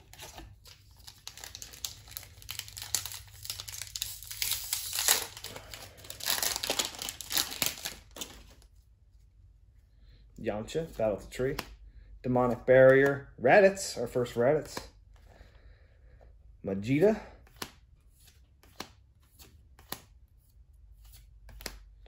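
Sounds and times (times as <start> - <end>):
foil wrapper crinkling and tearing: 0.0 - 8.6.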